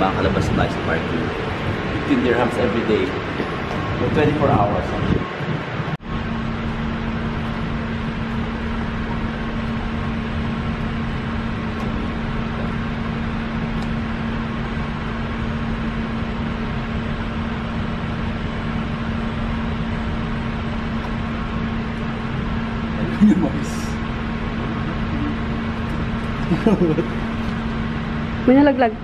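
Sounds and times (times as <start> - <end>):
steady mechanical hum: 0.0 - 29.0.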